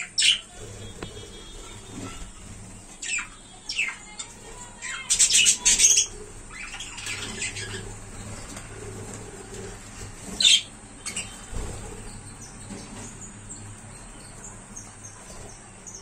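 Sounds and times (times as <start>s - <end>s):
budgerigars squawking: 4.9s - 8.0s, 10.4s - 11.5s.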